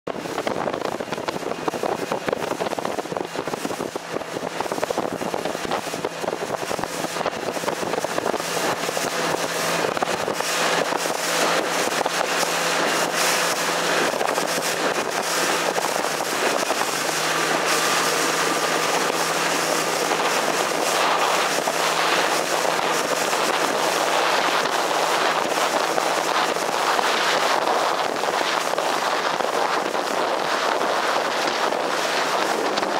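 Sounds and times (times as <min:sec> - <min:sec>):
motorboat engine hum: 0:00.1 - 0:32.9
water rushing past boat: 0:00.1 - 0:32.9
wind buffeting microphone: 0:00.1 - 0:32.9.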